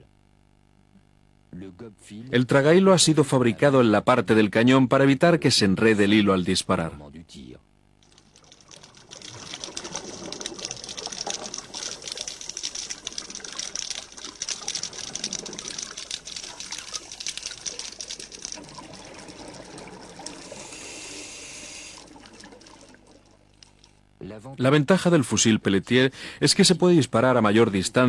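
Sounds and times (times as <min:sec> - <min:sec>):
underwater crackle of tiny clicks: 0:08.0 - 0:20.9, 0:21.8 - 0:24.1
underwater hiss: 0:09.1 - 0:22.7.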